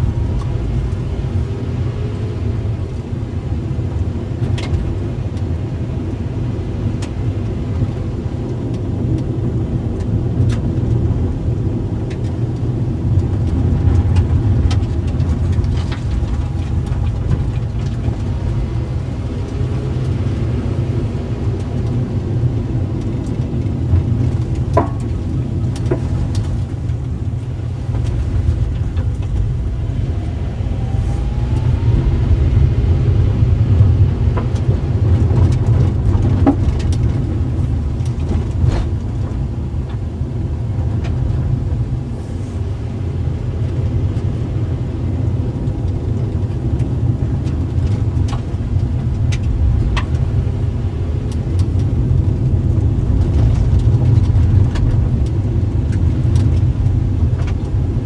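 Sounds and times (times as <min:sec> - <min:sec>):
car engine and road rumble: 0:00.0 - 0:58.0
sharp clicks and knocks: 0:24.2 - 0:27.0.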